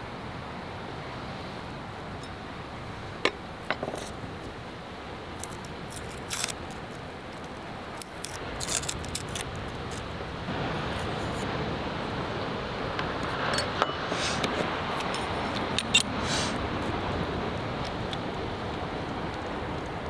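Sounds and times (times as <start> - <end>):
sea surf: 0.0 - 20.0
wind: 0.0 - 20.0
garlic skin crackling: 5.4 - 10.2.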